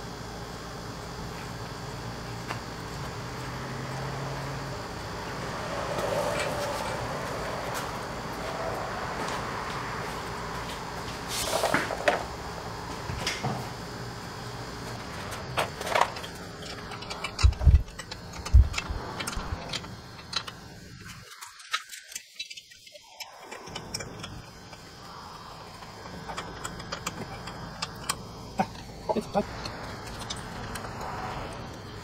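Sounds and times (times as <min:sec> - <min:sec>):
metallic clicks and rattles of tools: 0:15.8 - 0:24.4.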